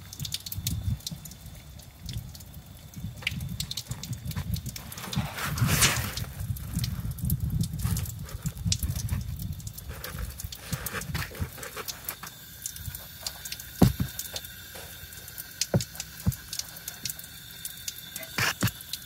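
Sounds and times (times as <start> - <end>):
water taps and drips on car: 0.0 - 19.0
sharp knock: 13.8 - 14.2.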